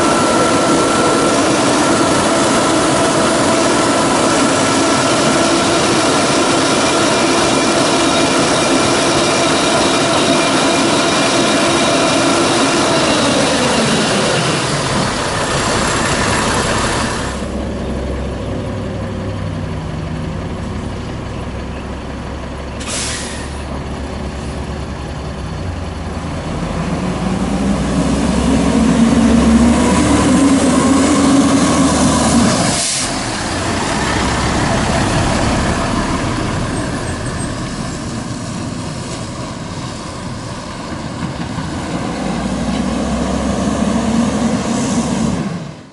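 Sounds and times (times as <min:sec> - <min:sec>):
diesel truck accelerating: 0:00.0 - 0:45.9
air brake hiss: 0:22.8 - 0:23.7, 0:32.6 - 0:33.3.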